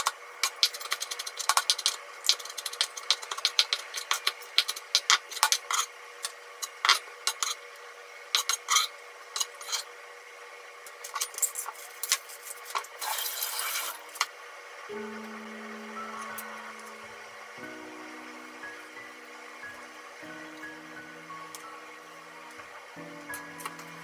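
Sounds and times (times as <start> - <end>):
music: 14.9 - 24.0.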